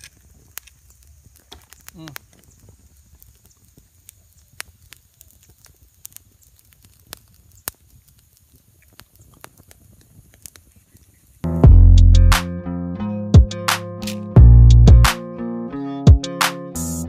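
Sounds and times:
twig fire crackling and popping: 0:00.0 - 0:11.6, 0:14.0 - 0:14.4.

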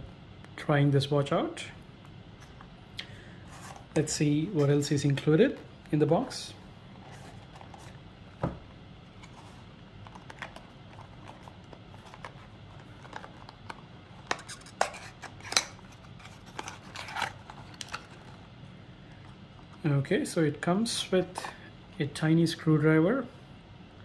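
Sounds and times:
cardboard thump: 0:08.4 - 0:08.6.

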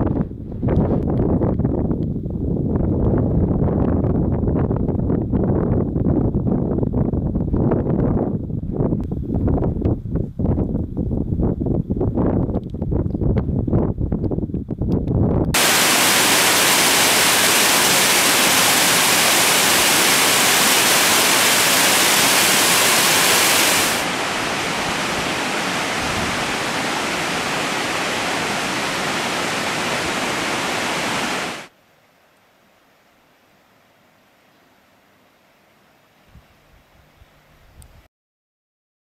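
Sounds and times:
wind gusts on microphone: 0:00.0 - 0:31.7
flowing stream water: 0:15.6 - 0:31.7.

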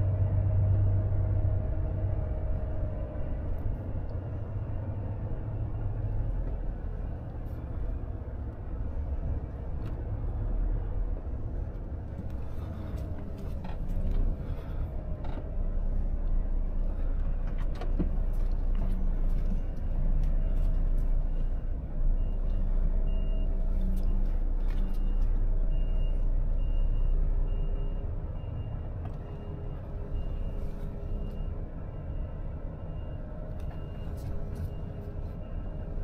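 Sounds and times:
truck diesel engine running: 0:00.0 - 0:36.0
reversing alarm beeping: 0:21.2 - 0:36.0.

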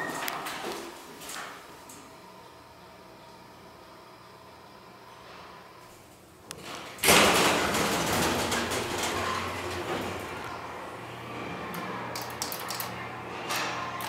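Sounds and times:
elevator doors sliding: 0:06.6 - 0:14.0.

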